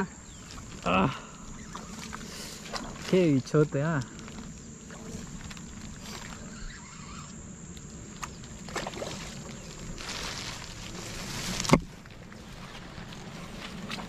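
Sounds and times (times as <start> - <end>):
fish splashing and thrashing: 1.5 - 3.3, 8.0 - 14.0.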